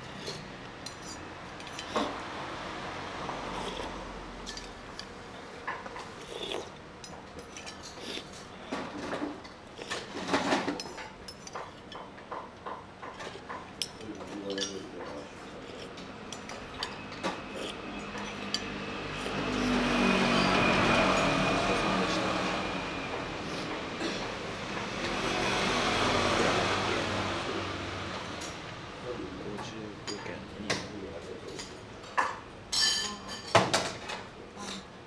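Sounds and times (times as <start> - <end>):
metal spoon scraping a bowl: 0.0 - 2.2, 3.3 - 5.1, 6.0 - 9.1, 9.8 - 12.0, 13.8 - 22.2
passing vehicle engine: 2.1 - 4.9, 17.0 - 29.1.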